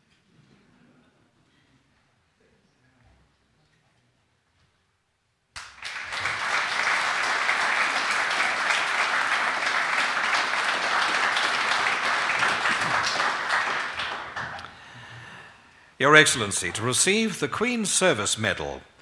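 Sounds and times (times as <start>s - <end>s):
audience applauding: 5.6s - 15.2s.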